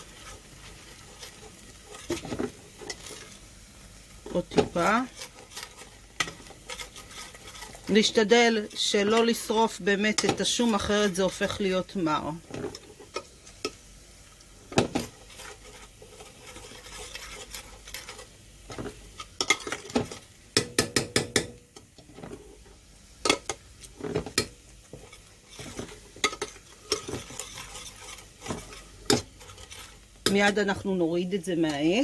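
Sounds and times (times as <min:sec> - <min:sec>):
metal spoon scraping a pot: 0:00.0 - 0:03.5, 0:04.2 - 0:11.7, 0:15.0 - 0:20.3, 0:23.3 - 0:31.0
faint sizzle of frying: 0:00.0 - 0:32.0.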